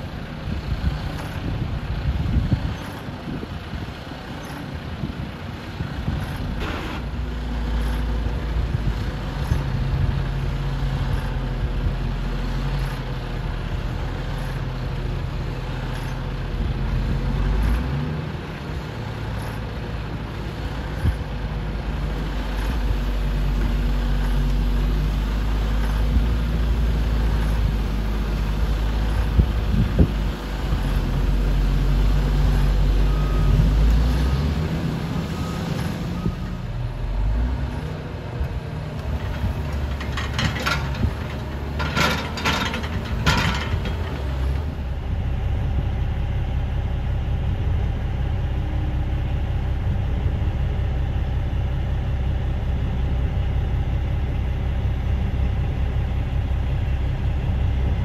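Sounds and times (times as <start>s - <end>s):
heavy diesel engines running: 0.0s - 58.0s
sharp metal clanks and knocks: 39.1s - 44.6s.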